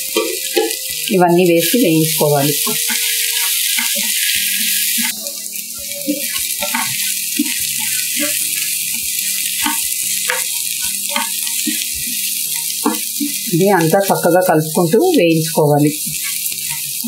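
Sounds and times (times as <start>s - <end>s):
food sizzling in hot oil: 0.0s - 17.0s
wooden spatula scraping a pan: 2.6s - 5.1s, 6.0s - 13.5s, 16.0s - 17.0s.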